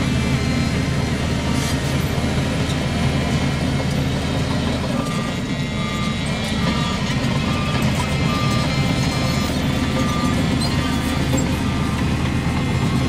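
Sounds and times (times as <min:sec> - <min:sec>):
heavy diesel engine running: 0:00.0 - 0:13.0.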